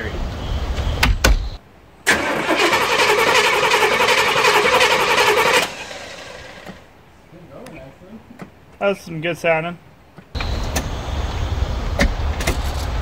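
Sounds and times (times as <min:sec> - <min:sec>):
engine starter cranking: 0:02.1 - 0:06.8.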